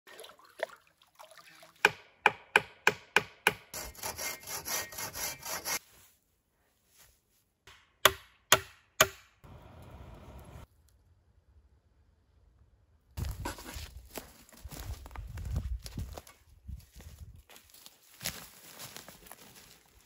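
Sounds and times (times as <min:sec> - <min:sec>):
hand saw sawing wood: 0:02.5 - 0:05.8.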